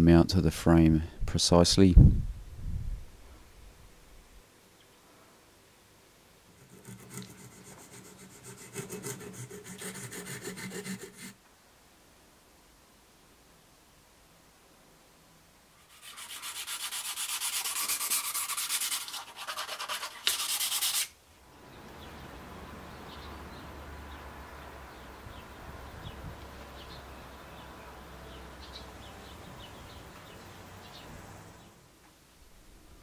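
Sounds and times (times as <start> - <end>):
hand tool rasping and scraping: 6.6 - 11.4.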